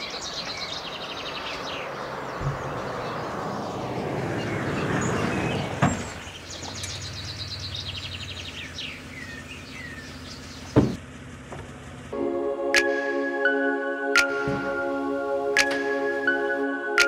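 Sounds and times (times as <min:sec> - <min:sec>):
birds chirping: 0:00.0 - 0:11.0
sharp knocks: 0:10.8 - 0:11.0
music: 0:12.2 - 0:17.0.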